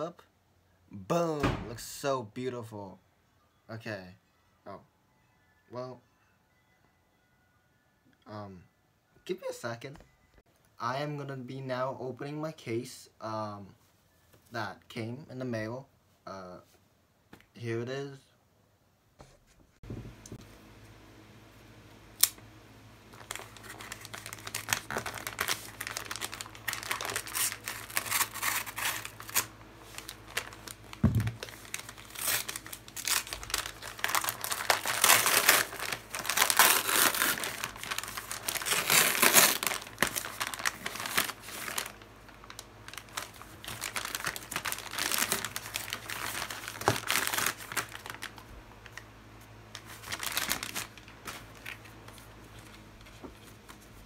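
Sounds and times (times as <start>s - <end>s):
paper mailer tearing and crinkling: 23.2s - 49.0s, 49.7s - 52.9s.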